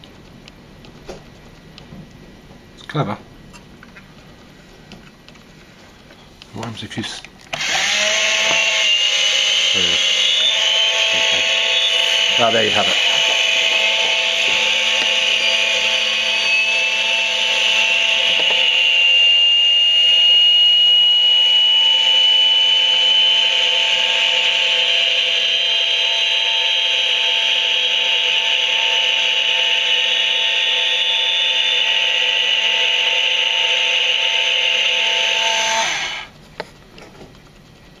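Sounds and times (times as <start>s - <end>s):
high jet whine: 6.7s - 36.3s
small electric motor whirring: 7.5s - 36.4s.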